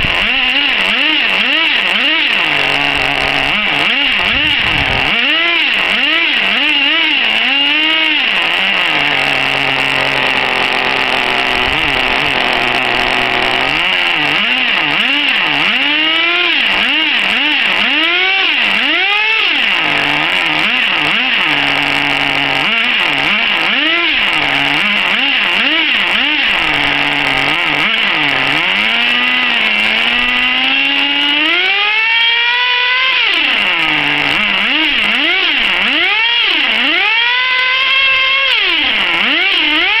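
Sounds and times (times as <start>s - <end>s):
small engine revving with whine: 0.0s - 40.0s.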